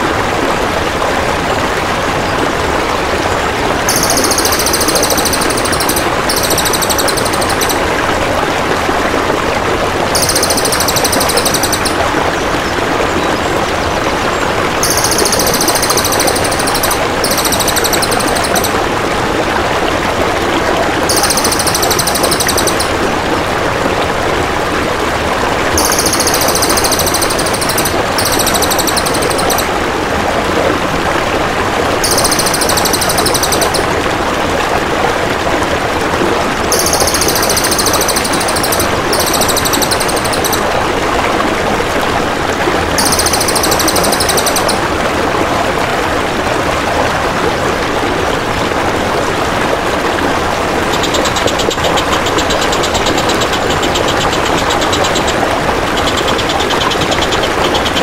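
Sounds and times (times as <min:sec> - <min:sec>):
water flowing: 0:00.0 - 0:58.0
bird trilling: 0:03.9 - 0:07.8, 0:10.2 - 0:12.0, 0:14.8 - 0:18.8, 0:21.1 - 0:23.0, 0:25.8 - 0:29.7, 0:32.0 - 0:33.9, 0:36.7 - 0:40.7, 0:43.0 - 0:44.8.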